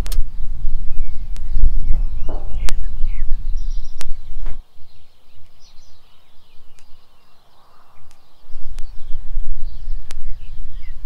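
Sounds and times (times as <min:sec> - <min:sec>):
low rumble: 0:00.0 - 0:04.6
birds chirping: 0:00.0 - 0:11.0
sharp knocks: 0:02.3 - 0:02.8.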